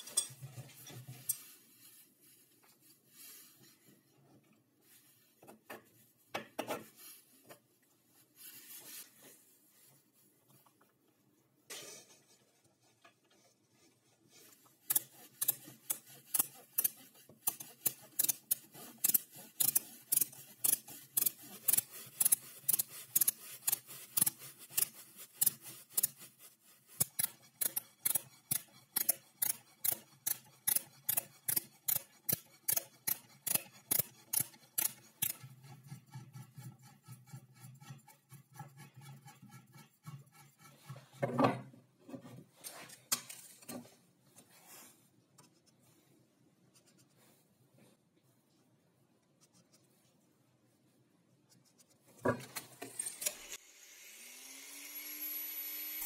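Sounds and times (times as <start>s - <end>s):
hand ratchet clicking: 27.0s - 35.4s.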